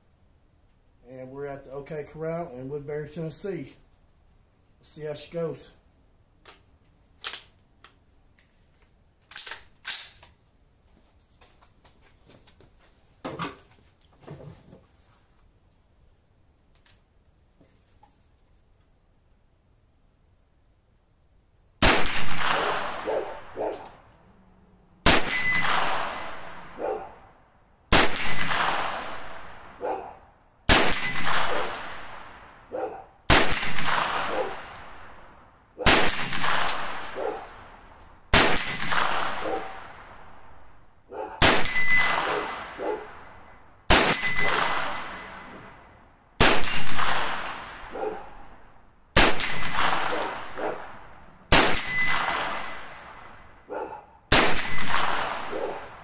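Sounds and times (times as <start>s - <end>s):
carbine gunshots echoing: 21.8s - 24.1s, 25.0s - 27.2s, 27.9s - 30.1s, 30.7s - 37.6s, 38.3s - 40.6s, 41.4s - 45.8s, 46.4s - 48.6s, 49.2s - 56.0s
steel target ringing: 25.1s - 26.8s, 30.7s - 32.6s, 38.4s - 39.9s, 41.4s - 42.8s, 43.9s - 45.8s, 46.4s - 47.9s, 49.2s - 53.3s, 54.3s - 56.0s.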